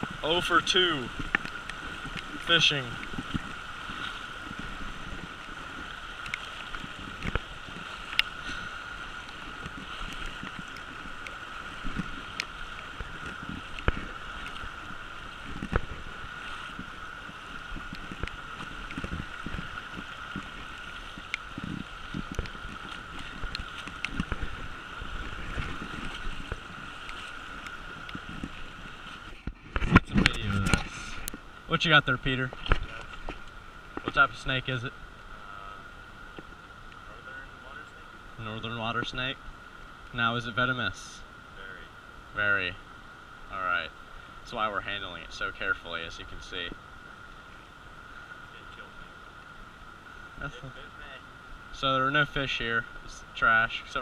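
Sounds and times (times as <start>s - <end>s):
wading splashes: 0.0s - 37.6s
fast-flowing river water: 0.0s - 54.0s.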